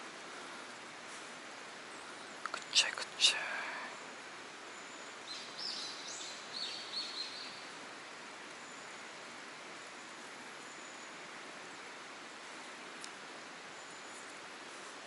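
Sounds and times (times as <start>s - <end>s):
outdoor background hiss: 0.0s - 15.0s
small bird chirping: 4.7s - 7.7s.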